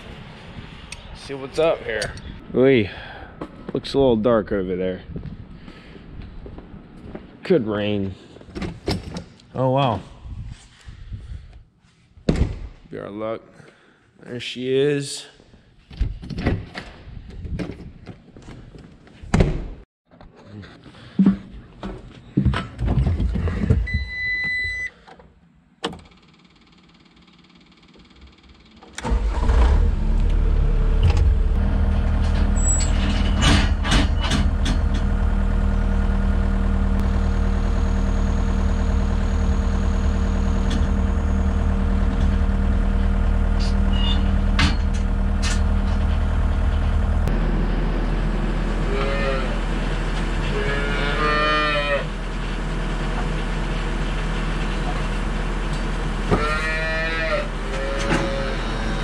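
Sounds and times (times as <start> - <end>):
diesel engine running: 29.0 - 59.0
calf mooing: 48.8 - 49.6, 50.5 - 52.1, 56.3 - 59.0.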